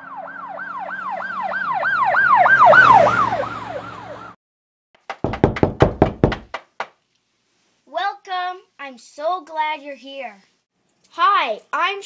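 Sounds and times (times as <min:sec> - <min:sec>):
emergency siren wailing: 0:00.0 - 0:04.4
sharp knocks: 0:05.0 - 0:07.0.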